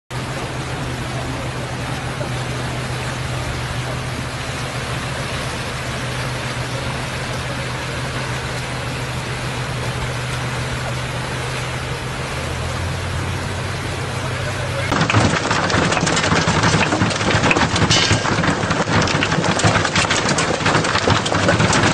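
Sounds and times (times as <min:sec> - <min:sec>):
water rushing over sand: 0:00.1 - 0:17.4.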